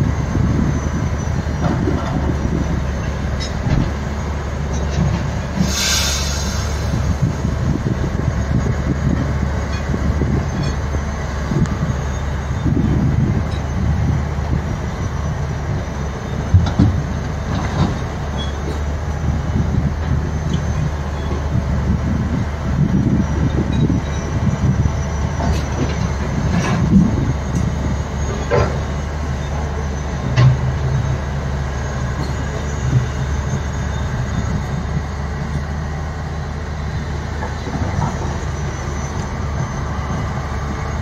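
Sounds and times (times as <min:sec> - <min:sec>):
heavy diesel engines rumbling: 0:00.0 - 0:41.0
brief hiss: 0:05.6 - 0:06.8.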